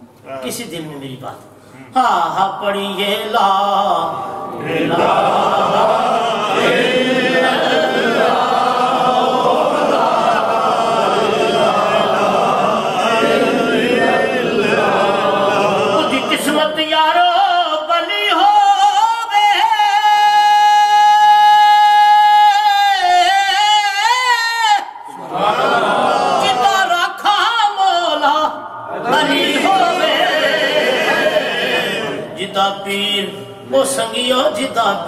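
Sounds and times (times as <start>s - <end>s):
men chanting together: 3.7s - 16.7s, 24.8s - 33.4s.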